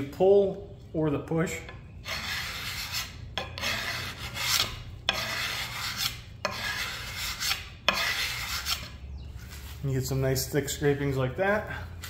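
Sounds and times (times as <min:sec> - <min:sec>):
steel scraper on wood: 0:02.0 - 0:09.0.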